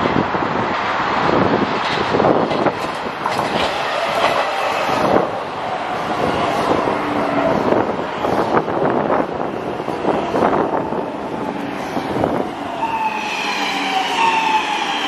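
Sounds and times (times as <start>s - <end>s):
metro train rumbling past: 0.0s - 15.0s
wheels knocking over rail joints: 1.8s - 4.9s.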